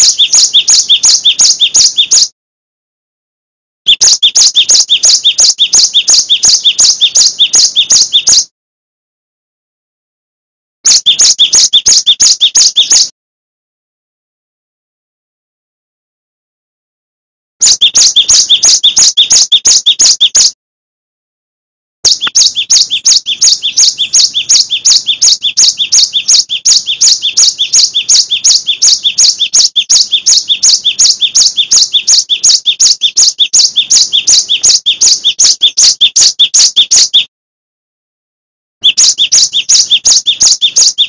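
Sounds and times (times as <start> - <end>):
bird calling sharp high notes: 0.0 - 2.3, 3.9 - 8.5, 10.8 - 13.1, 17.6 - 20.6, 22.1 - 37.3, 38.8 - 41.0.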